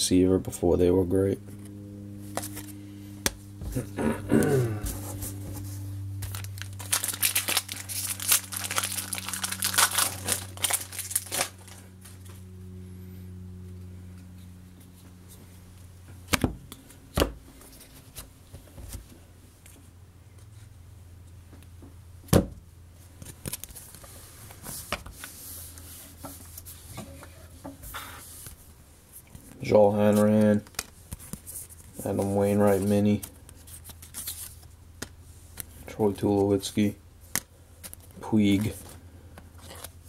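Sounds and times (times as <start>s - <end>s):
low steady hum: 0.0s - 40.0s
cards rustling: 1.6s - 3.8s, 4.9s - 12.3s, 29.3s - 36.6s, 37.2s - 40.0s
wrapper tearing and crinkling: 6.2s - 11.9s.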